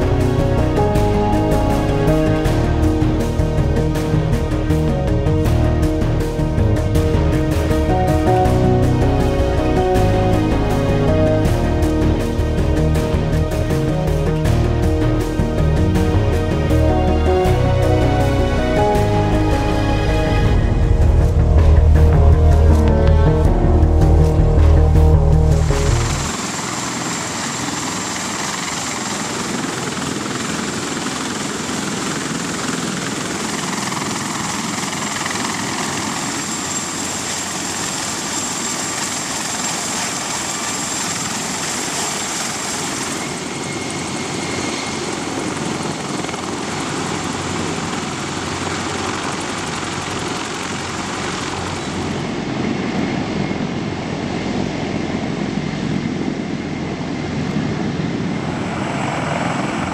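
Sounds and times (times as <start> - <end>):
helicopter turbine and rotor noise: 0.0 - 59.9
thin high whine: 34.8 - 49.0.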